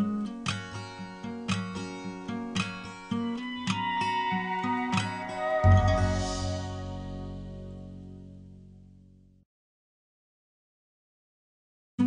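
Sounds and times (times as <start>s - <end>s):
held music chord ringing: 3.4s - 8.1s.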